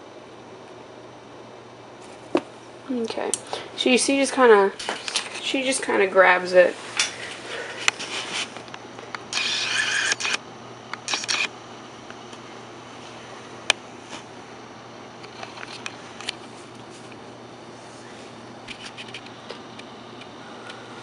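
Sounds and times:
steady low hum: 0.0 - 21.0
autofocus motor whirring: 9.2 - 11.6.

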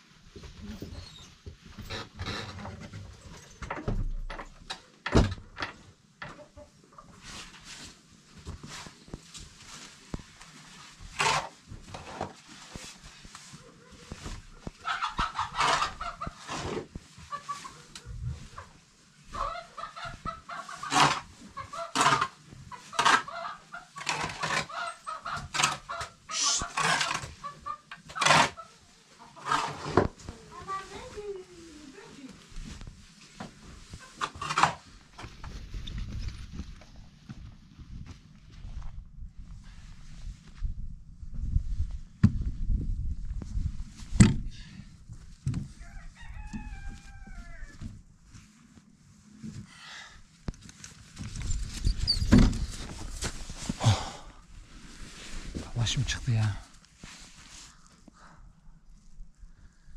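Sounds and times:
chickens clucking: 14.8 - 29.8
goats rustling and knocking: 50.5 - 53.9.

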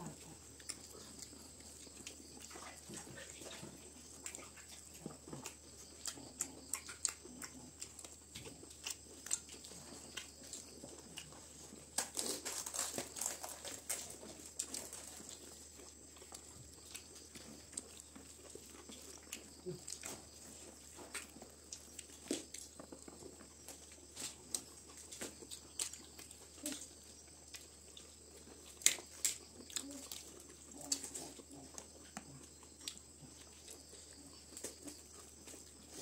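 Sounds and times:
chewing: 0.0 - 36.0.

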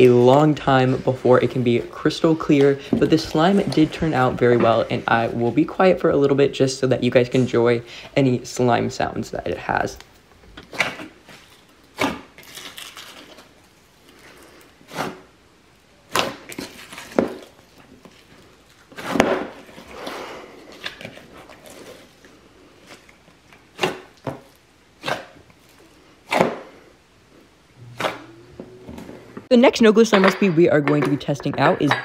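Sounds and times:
slime squishing by hand: 16.0 - 26.7.

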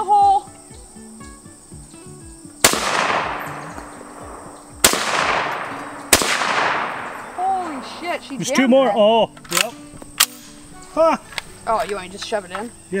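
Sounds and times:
rifle shots echoing: 2.6 - 8.4.

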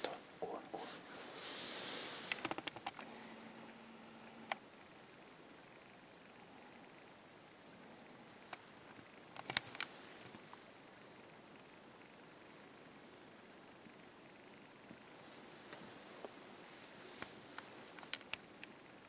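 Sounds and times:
crickets chirring: 0.0 - 19.0
sharp clicks: 4.4 - 4.6, 9.3 - 9.9, 17.9 - 18.7.

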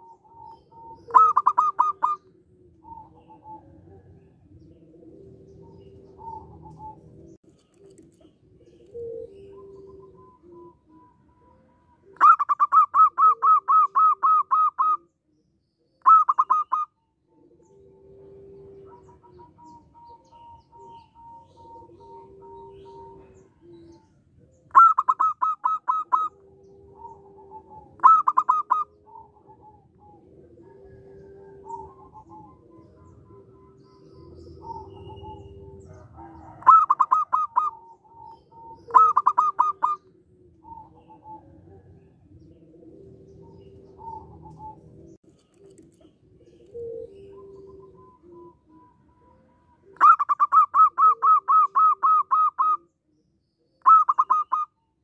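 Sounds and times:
doves soft low cooing: 0.0 - 55.0
doves rapid staccato calls: 1.1 - 2.2, 28.0 - 28.9, 38.9 - 40.0.

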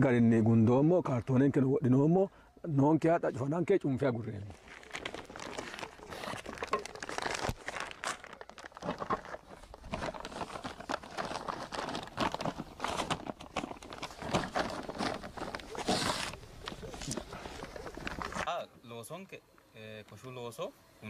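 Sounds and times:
plastic sheet crinkling: 4.5 - 18.5.

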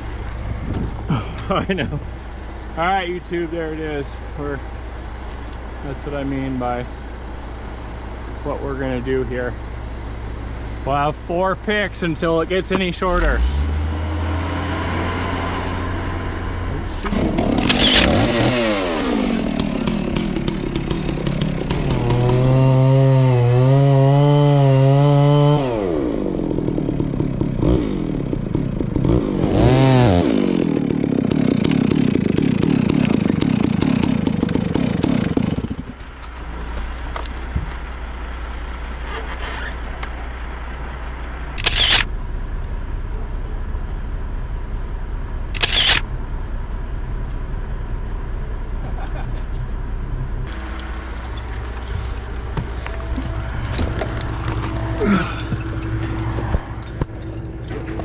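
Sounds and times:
low engine hum: 0.0 - 58.0
chainsaw revving and cutting: 13.4 - 35.8, 41.6 - 42.1, 45.6 - 46.0, 50.5 - 57.1.

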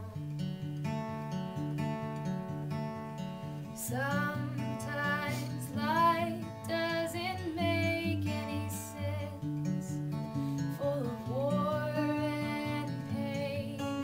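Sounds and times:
plucked acoustic guitar: 0.0 - 14.0
woman singing: 3.8 - 14.0.

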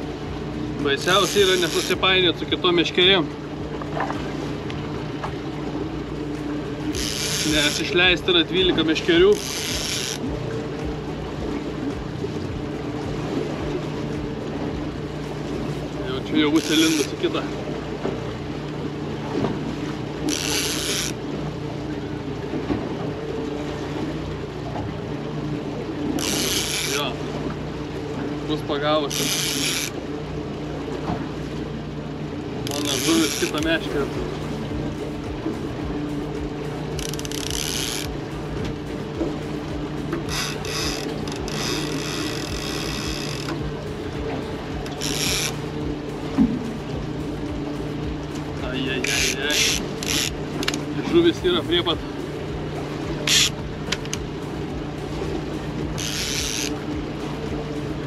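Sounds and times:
boat engine humming: 0.0 - 58.0
water noise: 0.0 - 58.0
wind: 0.0 - 58.0
fishing reel whirring: 1.0 - 2.2, 6.8 - 8.3, 9.0 - 10.3, 16.4 - 17.2, 20.2 - 21.2, 26.1 - 27.2, 29.1 - 30.0, 32.6 - 33.8, 36.4 - 38.6, 40.2 - 43.7, 44.7 - 45.8, 49.0 - 51.0, 53.2 - 54.8, 55.7 - 56.9.

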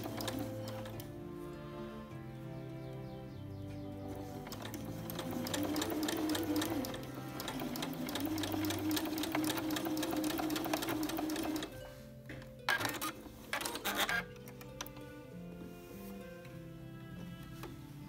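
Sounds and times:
sewing machine stitching: 0.0 - 1.1, 4.1 - 12.0, 12.7 - 14.9
soft background music: 0.0 - 18.0.

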